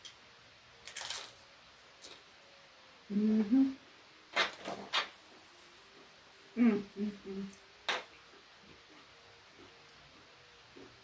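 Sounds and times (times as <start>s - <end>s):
woman humming mm-hmm: 3.1s - 3.8s, 6.5s - 7.6s.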